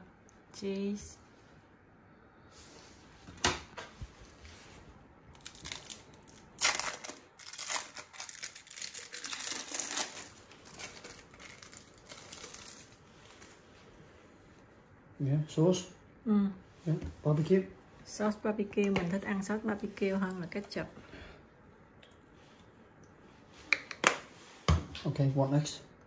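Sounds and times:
packaging crinkling and rustling: 0:05.3 - 0:14.0.

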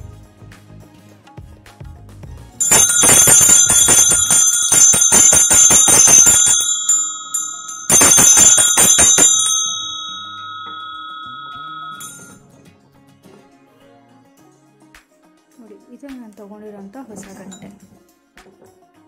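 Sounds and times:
hand bells clanging: 0:02.6 - 0:12.4.

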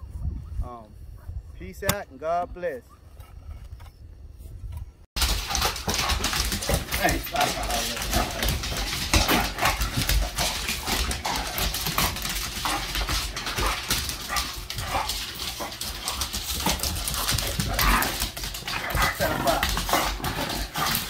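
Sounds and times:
claws clicking on wooden floor: 0:05.2 - 0:21.0.

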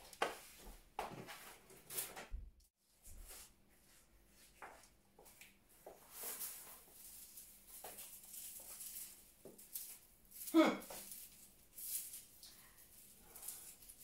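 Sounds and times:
rustling of flower stems: 0:05.2 - 0:14.0.

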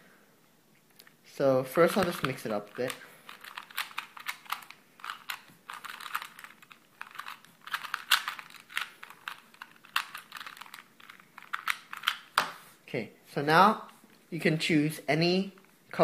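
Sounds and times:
puzzle cube clacking clicks: 0:01.7 - 0:12.6.

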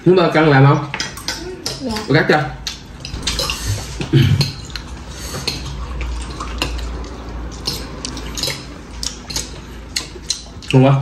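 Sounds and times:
cutlery clinking on plates: 0:00.6 - 0:10.6.

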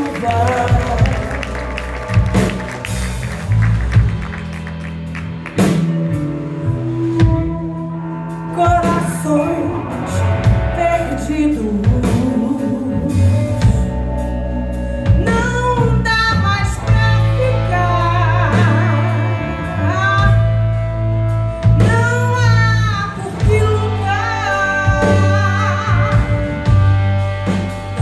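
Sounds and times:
woman singing: 0:00.0 - 0:01.9, 0:06.8 - 0:20.6, 0:21.6 - 0:27.0
live rock band: 0:00.0 - 0:28.0.

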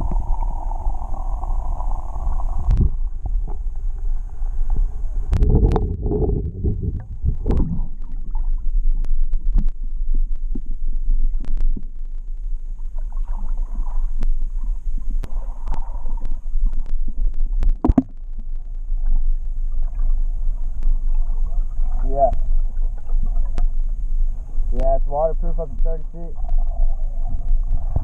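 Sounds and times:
muffled underwater rumble: 0:00.0 - 0:28.0
underwater clicks and knocks: 0:02.7 - 0:03.7, 0:05.3 - 0:09.8, 0:16.7 - 0:18.2.

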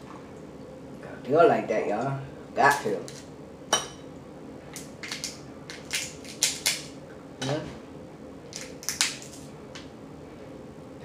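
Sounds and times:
crab shell cracking: 0:04.8 - 0:06.9, 0:08.5 - 0:09.4.

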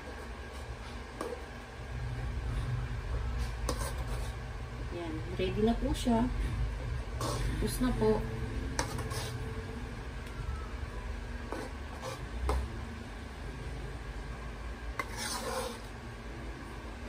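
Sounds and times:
low steady hum: 0:00.0 - 0:17.0
spatula scraping metal pan: 0:03.7 - 0:04.4, 0:08.8 - 0:09.5, 0:11.5 - 0:12.3, 0:15.0 - 0:15.9.

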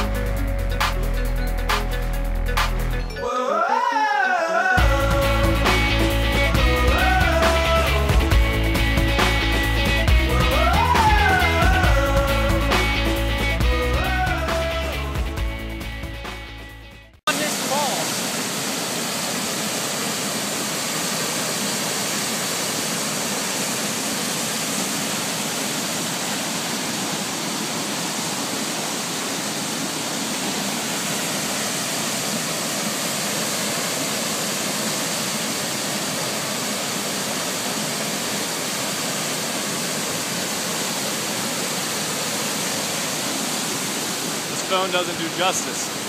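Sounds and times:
waterfall rushing: 0:17.3 - 0:46.0.

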